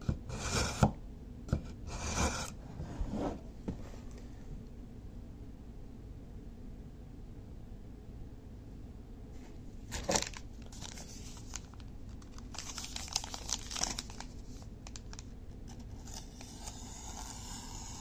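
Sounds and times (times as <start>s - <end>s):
paper rustling: 9.4s - 17.4s
paper crinkling and tearing: 9.9s - 18.0s
knife cutting paper: 15.7s - 18.0s.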